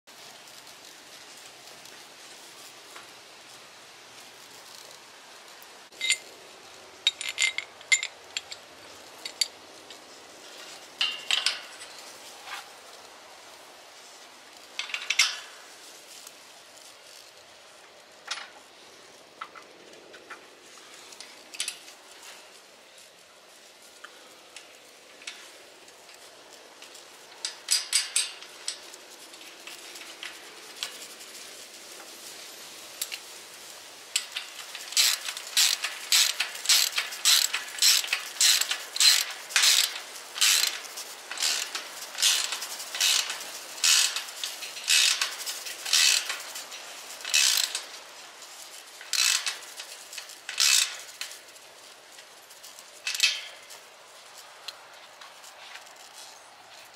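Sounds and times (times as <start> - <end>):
ratchet wrench clicking: 6.0 - 6.3, 34.2 - 40.8, 41.4 - 44.2, 44.9 - 45.3, 45.9 - 46.4, 47.2 - 47.8, 49.1 - 49.6, 50.5 - 51.0.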